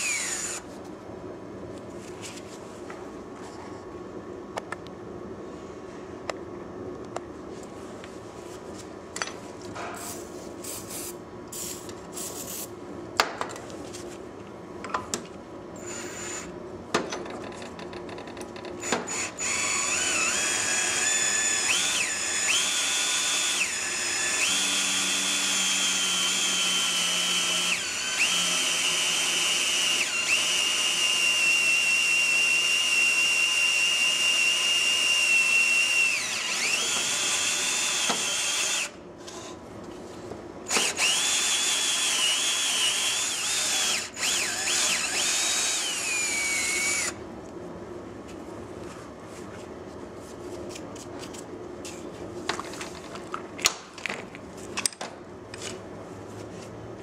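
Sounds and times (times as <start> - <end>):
cordless drill motor whining: 0.0 - 0.6, 15.8 - 16.5, 18.8 - 39.0, 40.7 - 47.2.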